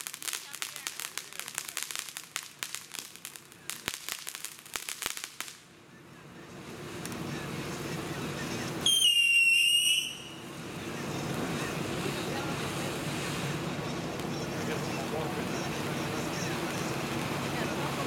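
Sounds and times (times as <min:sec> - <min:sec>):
firework fountain crackling: 0:00.0 - 0:18.0
firework fountain rushing: 0:00.0 - 0:18.0
loud wavering whistle: 0:08.8 - 0:10.4.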